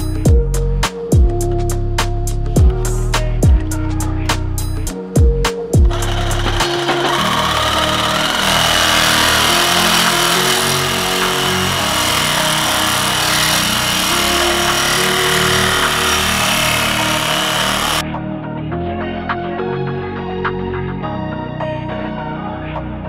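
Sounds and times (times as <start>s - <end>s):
angle grinder cutting steel: 5.9s - 18.0s.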